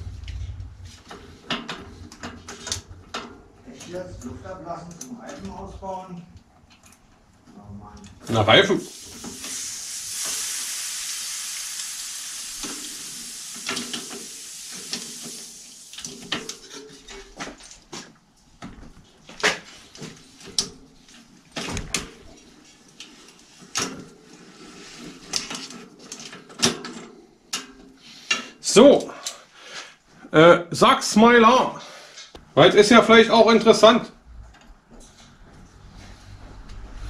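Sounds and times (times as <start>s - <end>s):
steady hiss: 8.7s - 16.7s.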